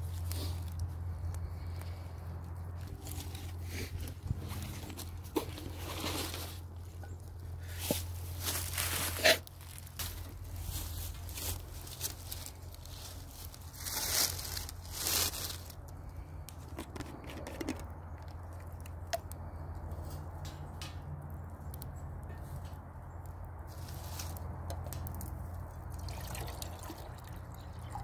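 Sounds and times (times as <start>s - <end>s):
dry leaves and twigs crunching: 0.0s - 21.0s, 23.6s - 27.2s
burning sticks snapping: 18.0s - 25.7s.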